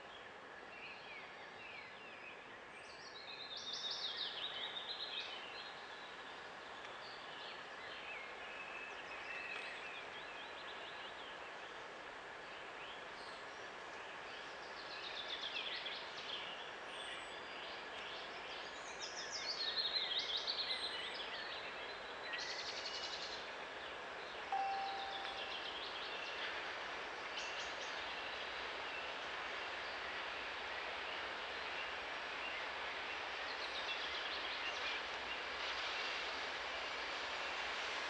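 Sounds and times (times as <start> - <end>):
faint background hiss: 0.0 - 38.0
songbirds singing: 12.6 - 26.6
whistle-like tone: 24.6 - 25.5.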